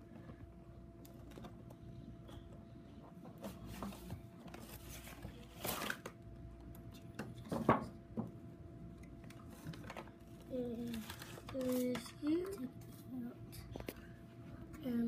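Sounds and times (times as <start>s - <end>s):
faint steady hum: 0.0s - 15.0s
packaging rustling: 9.3s - 12.5s.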